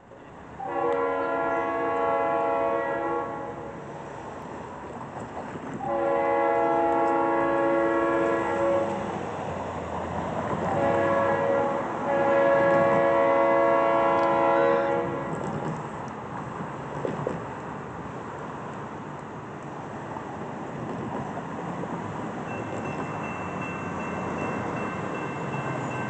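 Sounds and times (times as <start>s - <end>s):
train rumbling: 0.0s - 26.0s
train air horn blasts: 0.6s - 3.8s, 5.8s - 9.1s, 10.7s - 15.5s.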